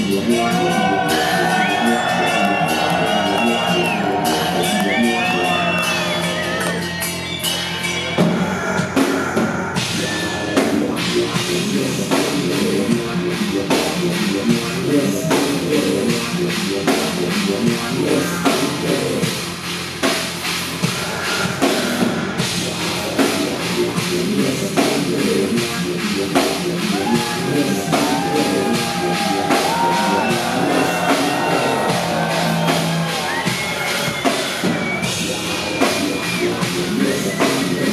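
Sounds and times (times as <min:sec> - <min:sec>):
keyboards: 0:00.0 - 0:37.9
rapid drum kit hits: 0:08.2 - 0:37.9
distorted guitars: 0:20.6 - 0:37.9.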